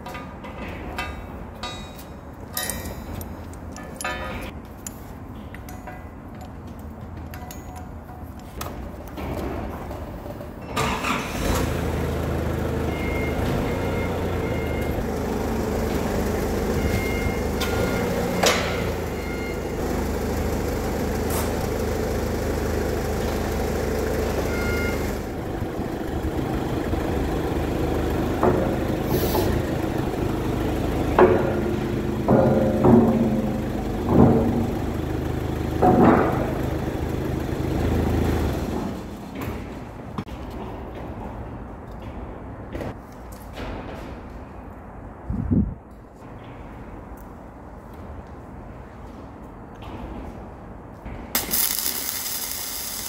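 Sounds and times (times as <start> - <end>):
forklift engine running: 10.2 - 40.0.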